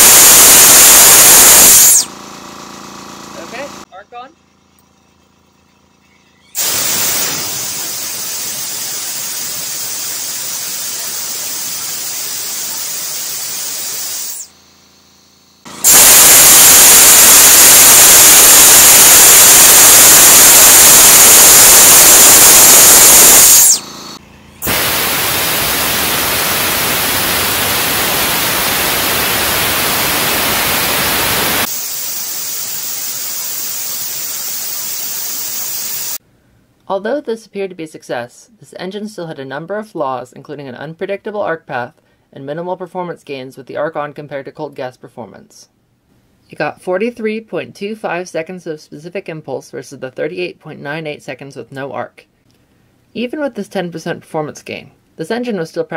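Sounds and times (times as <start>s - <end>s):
compressed air hissing through nozzle: 0.0s - 2.1s, 6.6s - 14.5s, 15.8s - 23.9s, 24.6s - 36.2s.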